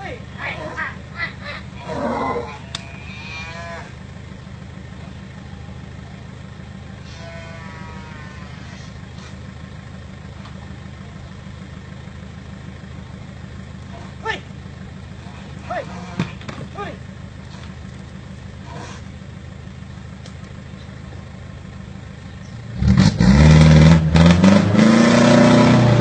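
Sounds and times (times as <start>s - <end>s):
steady low rumble: 0.0s - 23.0s
water buffalo bawling: 0.3s - 4.1s, 6.8s - 9.4s, 15.2s - 17.8s, 18.6s - 19.2s.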